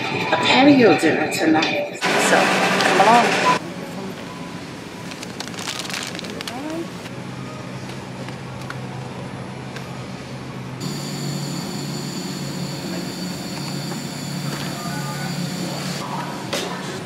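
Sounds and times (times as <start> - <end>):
in-store hum and rumble: 2.0 - 17.0
high steady whines: 9.2 - 16.4.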